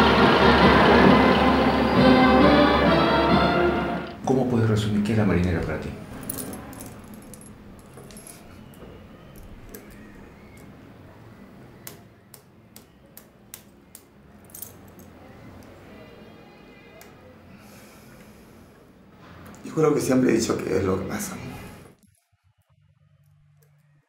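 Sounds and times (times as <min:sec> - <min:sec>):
keys clinking and jingling: 0:06.1 - 0:10.7, 0:14.3 - 0:15.1.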